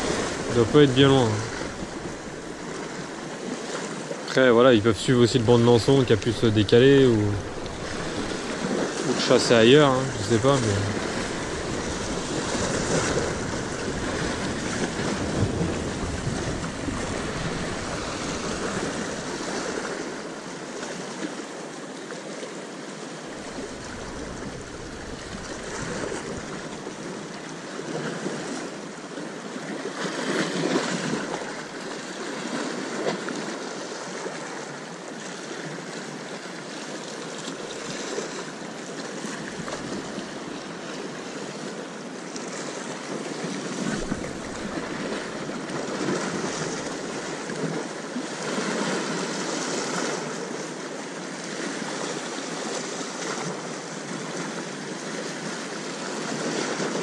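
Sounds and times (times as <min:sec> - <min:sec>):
wind rumbling on microphone: 0:00.0 - 0:03.2, 0:05.3 - 0:09.2, 0:10.0 - 0:20.3, 0:23.3 - 0:27.3, 0:43.7 - 0:47.8
sea waves surging: 0:00.0 - 0:57.0.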